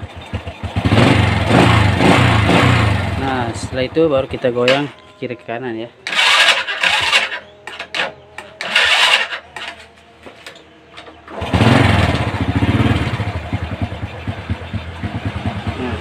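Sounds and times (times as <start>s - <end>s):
small engine starting and running: 6.1s - 9.8s, 11.3s - 16.0s.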